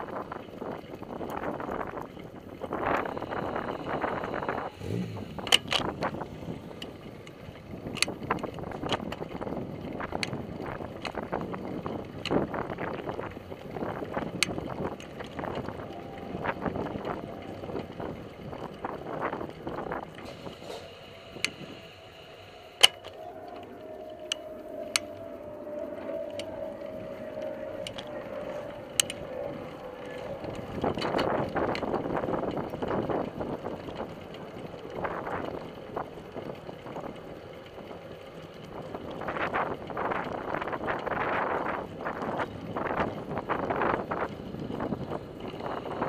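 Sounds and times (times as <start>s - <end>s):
wheels rumbling over asphalt: 0.0s - 46.0s
faint whine falling in pitch: 1.4s - 5.2s, 12.6s - 36.3s
wind on microphone: 7.6s - 37.2s, 38.7s - 46.0s.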